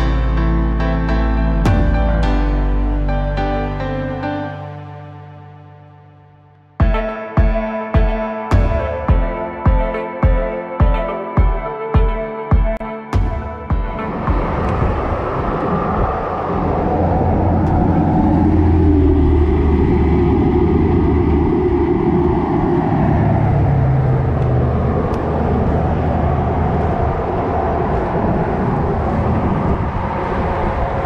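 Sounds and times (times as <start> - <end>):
road traffic rumble: 13.2 - 31.0
vehicle passing: 13.8 - 31.0.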